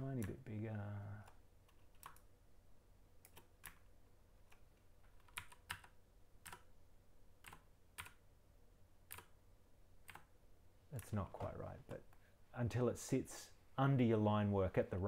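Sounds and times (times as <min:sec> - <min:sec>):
keyboard and mouse clicks: 0:01.2 - 0:02.3, 0:03.2 - 0:06.7, 0:07.4 - 0:08.2, 0:09.0 - 0:09.4, 0:10.0 - 0:10.3.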